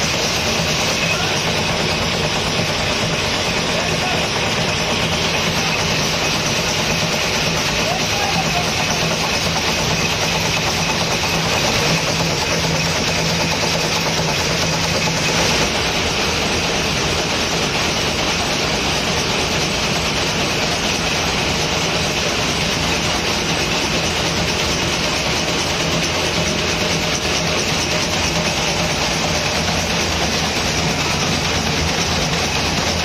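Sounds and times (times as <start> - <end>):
machine clattering with fast strokes: 0.0 - 33.0.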